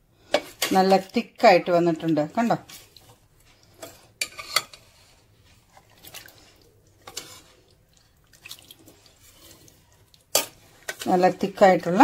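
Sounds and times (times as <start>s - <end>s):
spoon scraping metal pot: 0.3s - 1.1s, 2.6s - 8.2s, 8.8s - 12.0s.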